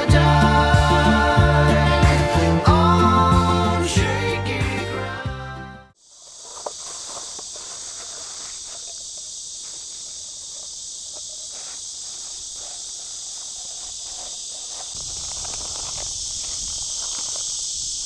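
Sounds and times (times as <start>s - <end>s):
cicadas singing: 0.0s - 5.2s, 6.0s - 18.0s.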